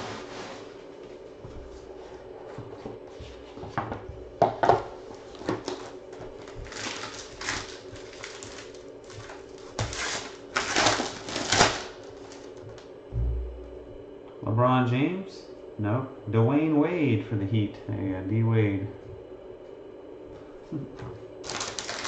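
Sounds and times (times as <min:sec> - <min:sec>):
foil wrapper crinkling: 0:05.4 - 0:12.8, 0:21.4 - 0:22.0.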